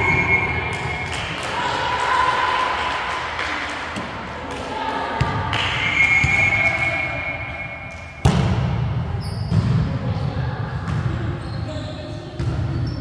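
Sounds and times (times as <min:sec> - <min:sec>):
players shouting in a gym: 0:00.0 - 0:13.0
volleyball strike: 0:07.9 - 0:09.9.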